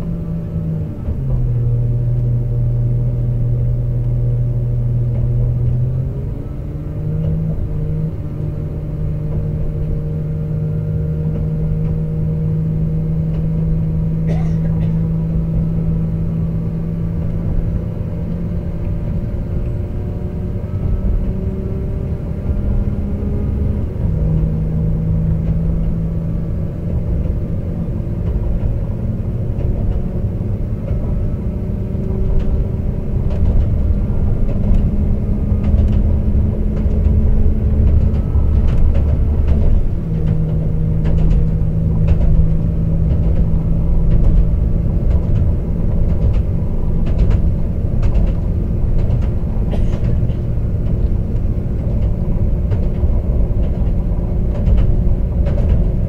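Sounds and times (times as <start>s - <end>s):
running gear rumble: 0.0s - 56.0s
train engine drone: 0.0s - 56.0s
sharp clicks and knocks: 25.2s - 56.0s.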